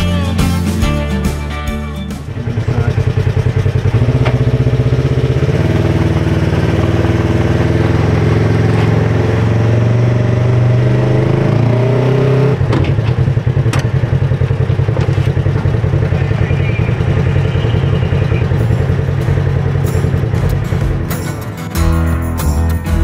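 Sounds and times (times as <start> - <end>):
engine running steadily: 0.0 - 23.0
sharp knocks: 12.7 - 14.0.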